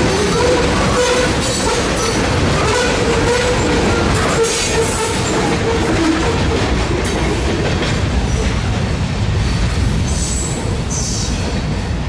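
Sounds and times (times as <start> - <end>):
freight train wheels rumbling: 0.0 - 12.0.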